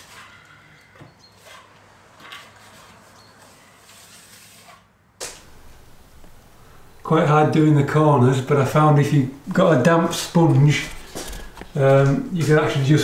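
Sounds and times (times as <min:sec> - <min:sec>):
plastering tool scraping wet plaster: 0:01.3 - 0:05.0.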